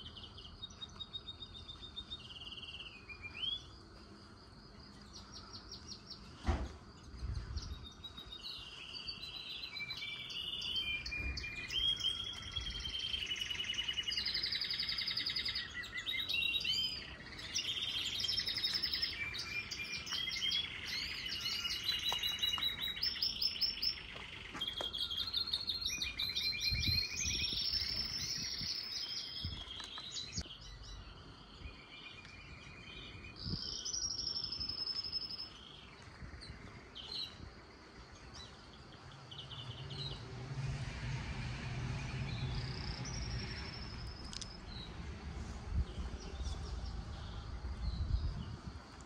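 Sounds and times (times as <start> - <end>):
small birds chirping: 0.0 - 40.3, 42.0 - 49.0
low rumble: 39.5 - 48.7.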